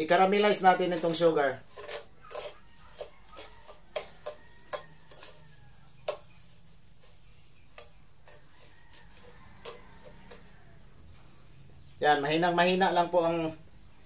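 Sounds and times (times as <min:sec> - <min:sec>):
spatula scraping sugar in a pan: 0:00.0 - 0:10.9.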